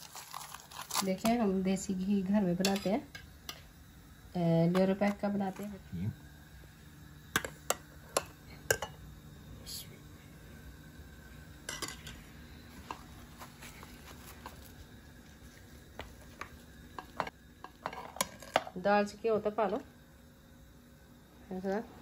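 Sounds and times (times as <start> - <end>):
spoon clinking against bowls: 7.4 - 9.0.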